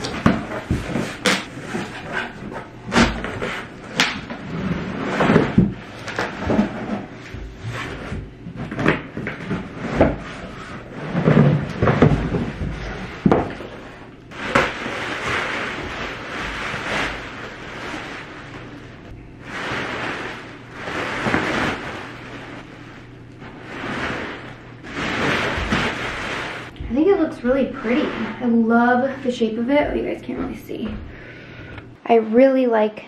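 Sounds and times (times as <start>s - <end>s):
bubble wrap crinkling: 14.2s - 26.8s.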